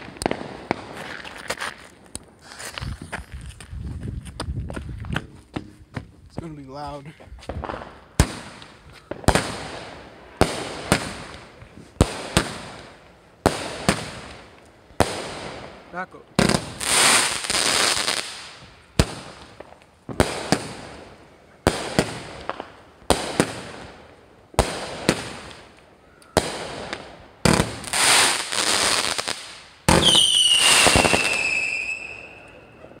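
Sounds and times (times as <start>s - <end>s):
firework whistle falling in pitch: 30.0s - 32.9s.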